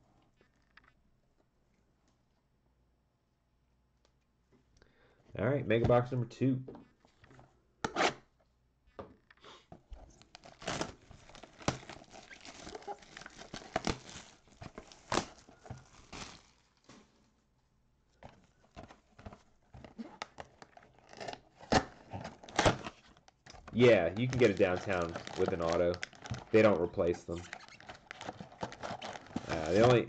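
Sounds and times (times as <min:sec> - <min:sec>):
plastic shrink-wrap crinkling: 0:10.1 - 0:17.2, 0:18.8 - 0:30.0.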